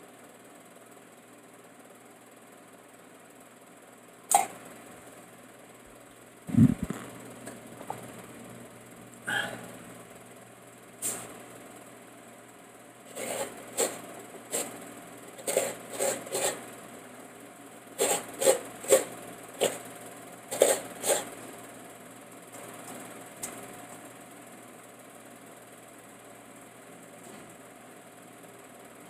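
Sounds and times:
low steady hum: 0:03.0 - 0:14.4
coconut scraping on grater: 0:13.1 - 0:14.8, 0:15.4 - 0:16.6, 0:18.0 - 0:19.8, 0:20.5 - 0:21.3.

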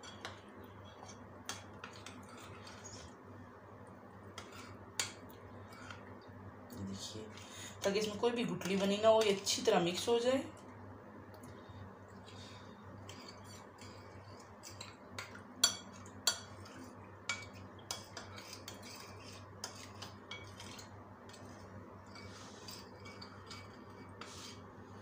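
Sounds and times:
metal spoon scraping and clinking bowl: 0:00.0 - 0:03.1, 0:13.0 - 0:24.6.

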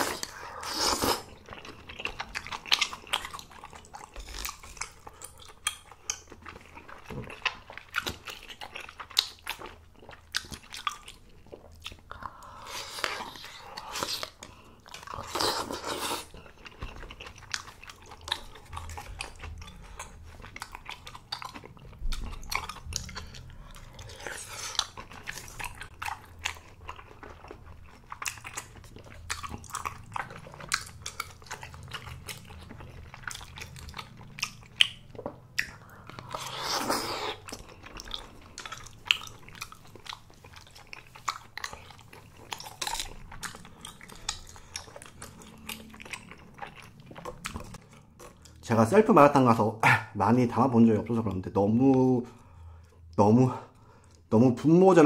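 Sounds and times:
slurping noodles: 0:00.0 - 0:01.4, 0:15.1 - 0:16.4, 0:36.2 - 0:37.5
person chewing with mouth clicks: 0:00.0 - 0:48.7.

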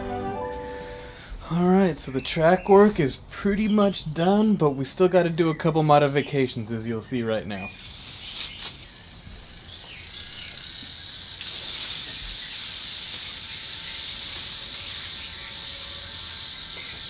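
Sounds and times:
toy train rolling on plastic track: 0:09.6 - 0:17.0.

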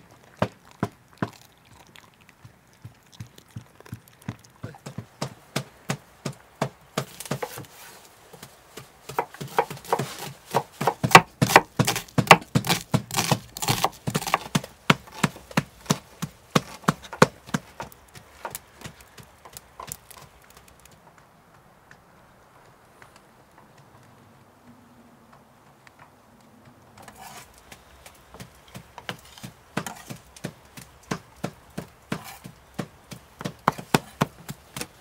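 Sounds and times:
dog chewing raw meat: 0:00.2 - 0:04.9
knife chopping on wooden board: 0:04.6 - 0:07.7, 0:09.1 - 0:18.9, 0:28.4 - 0:35.0.

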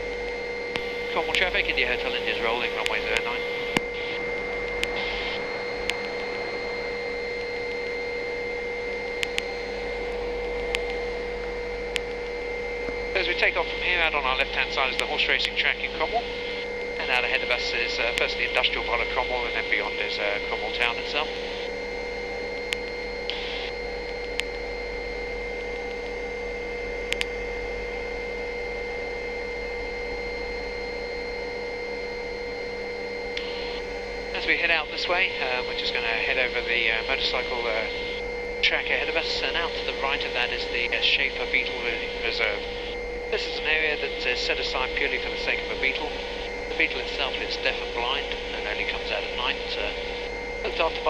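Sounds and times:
helicopter hiss and whine: 0:00.0 - 0:51.0.

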